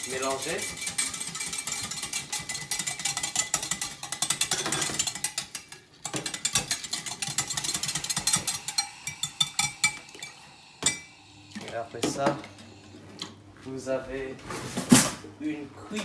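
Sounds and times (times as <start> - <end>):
whisk clinking on glass: 0.0 - 11.1.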